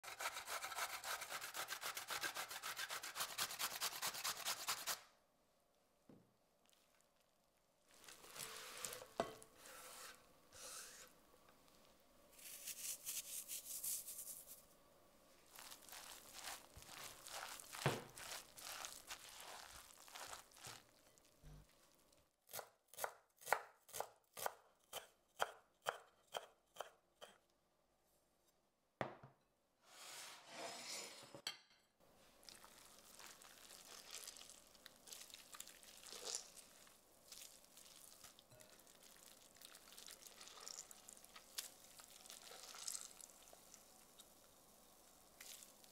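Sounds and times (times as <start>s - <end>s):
wet squelches from squeezing: 15.5s - 22.1s, 32.4s - 44.4s, 45.4s - 45.9s.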